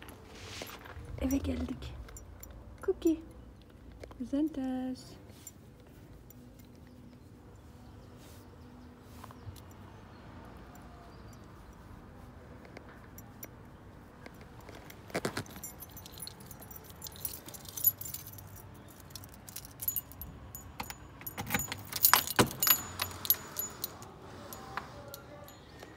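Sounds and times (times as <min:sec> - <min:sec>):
keys jangling: 0:14.7 - 0:25.9.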